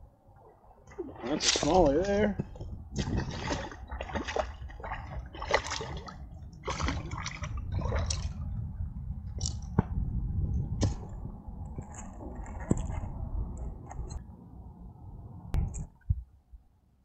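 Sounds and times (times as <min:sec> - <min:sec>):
water splashing and sloshing: 0:00.0 - 0:10.0, 0:10.7 - 0:14.2.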